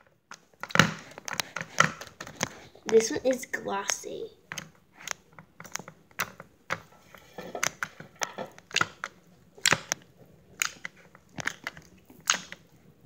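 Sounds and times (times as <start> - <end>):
slime clicking and popping: 8.5 - 12.8.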